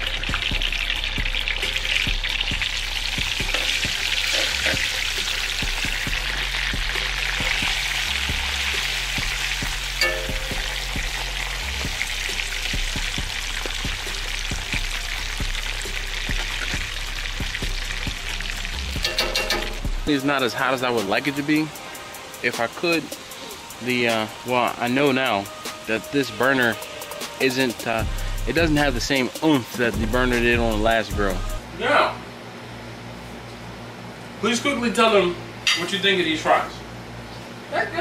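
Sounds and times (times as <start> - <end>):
fries sizzling in fat: 0.0 - 31.6
metal tongs stirring: 3.5 - 5.6, 10.0 - 11.0, 19.0 - 19.9.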